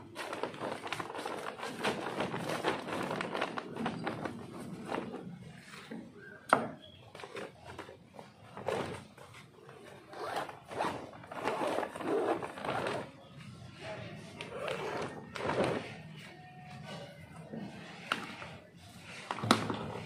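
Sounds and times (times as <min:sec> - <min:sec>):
woven bag crackling rustle: 0:00.0 - 0:05.7, 0:07.4 - 0:13.2.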